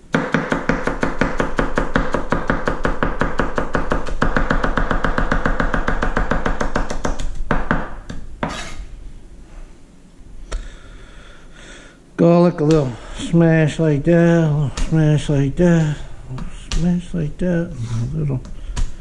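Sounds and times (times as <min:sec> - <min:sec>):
knife chopping on cutting board: 0:00.1 - 0:08.8.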